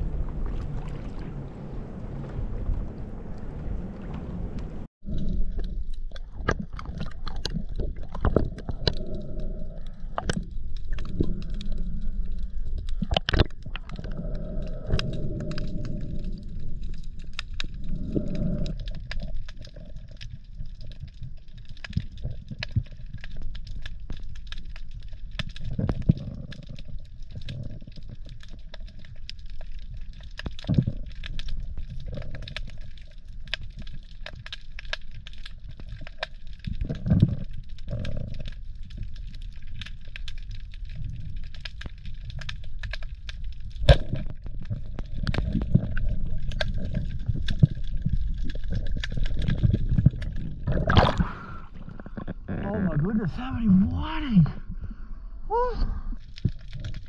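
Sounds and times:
water splash: 0.0 - 4.9, 50.6 - 51.8
underwater moving water rumble: 0.0 - 57.0
sharp underwater clicks: 4.1 - 52.6.

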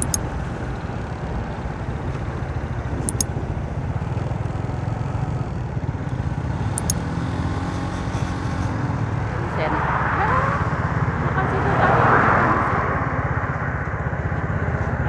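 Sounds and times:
wind buffeting microphone: 0.0 - 6.0
road and vehicle noise: 0.0 - 15.0.

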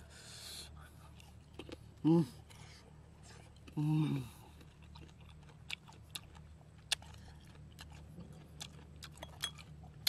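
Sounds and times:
steady low hum: 0.0 - 10.0
person chewing: 1.0 - 10.0.

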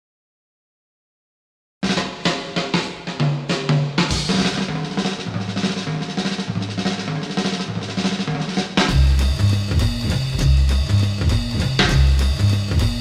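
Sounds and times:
busy drums: 1.8 - 13.0
bass line: 8.9 - 13.0.

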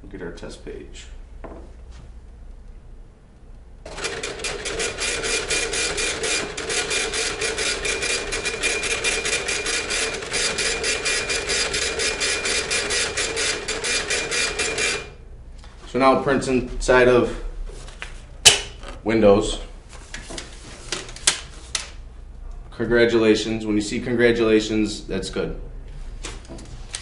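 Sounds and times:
dot-matrix printer chattering: 3.9 - 15.1.

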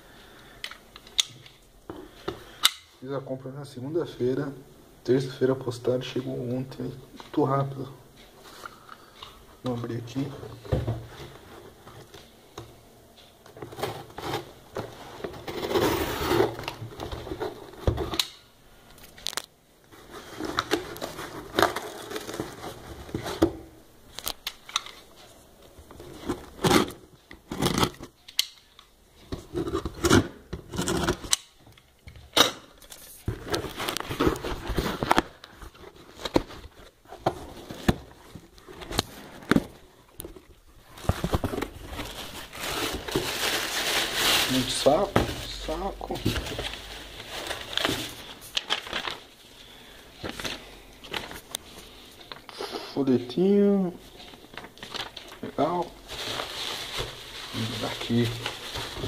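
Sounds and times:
cardboard tearing and scraping: 15.4 - 16.7.

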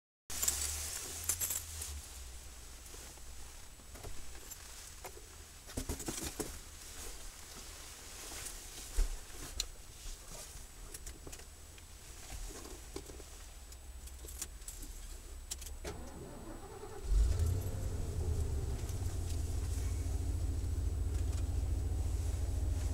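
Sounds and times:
faint low rumble: 0.3 - 5.7, 6.6 - 22.9
starter cranking engine: 15.9 - 20.4.

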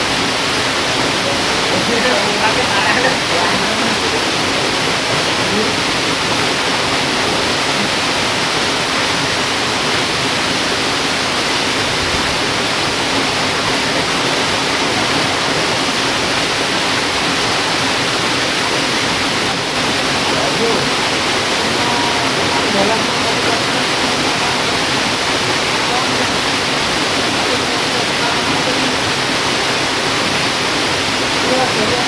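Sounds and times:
river water churning over rocks: 0.0 - 32.0.

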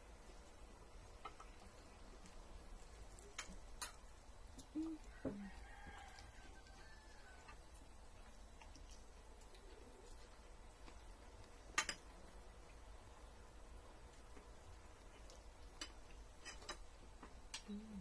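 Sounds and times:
rooster crowing faintly: 4.6 - 7.9.

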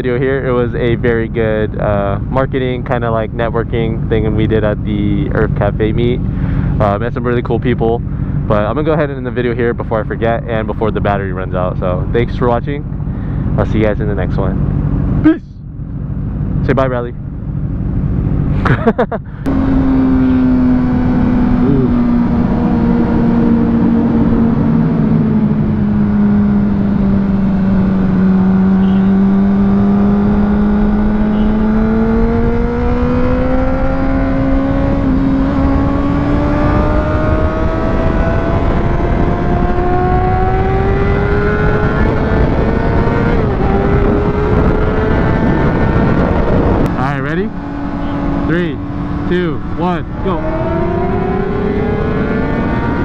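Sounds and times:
motorcycle engine accelerating: 0.0 - 53.0
wind rush: 31.6 - 53.0.

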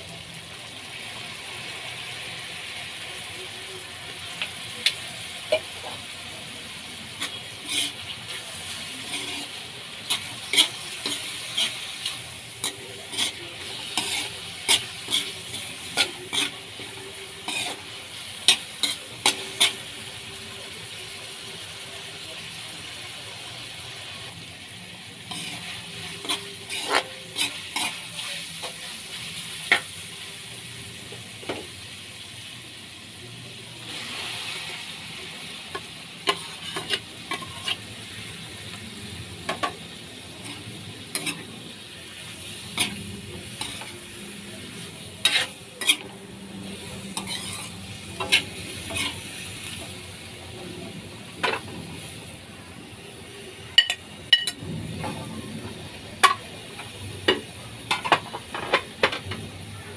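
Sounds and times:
food sizzling in a wok: 0.0 - 59.9
metal ladle scraping a wok: 7.1 - 20.1, 25.2 - 28.9, 36.2 - 37.9, 40.4 - 41.5, 42.3 - 49.9.

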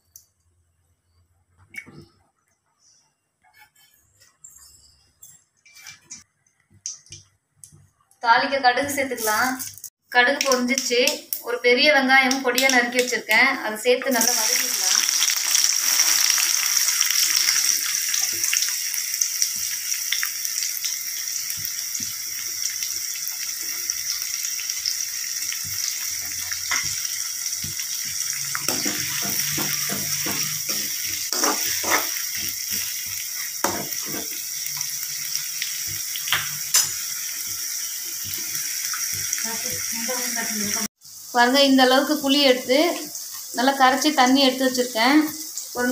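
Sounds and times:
onions sizzling in oil: 8.8 - 9.7, 10.6 - 45.9.

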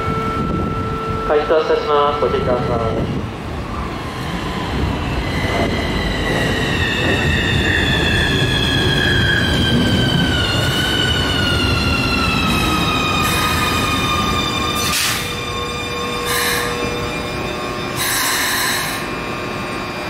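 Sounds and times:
wheels rumbling on rail: 0.0 - 20.0
train traction motors whining: 5.4 - 20.0.

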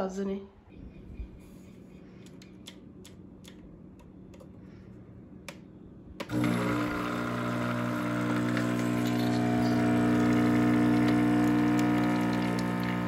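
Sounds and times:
coffee machine pump humming: 6.2 - 13.0.

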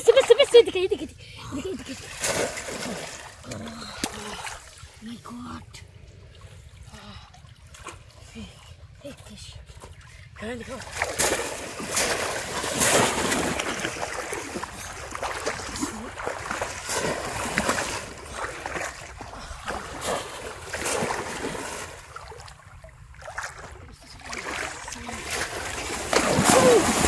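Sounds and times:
hands splashing pond water: 1.8 - 5.0, 10.7 - 27.0.

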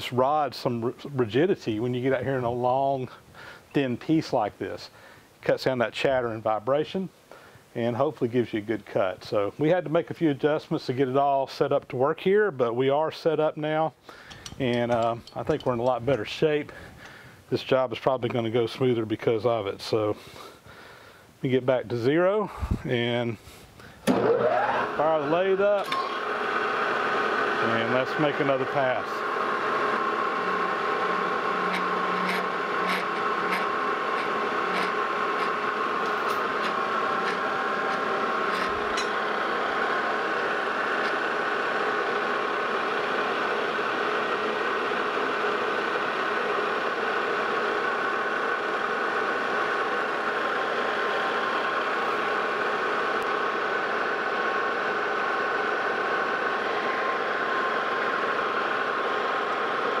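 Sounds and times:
metal lathe whine: 24.1 - 60.0.

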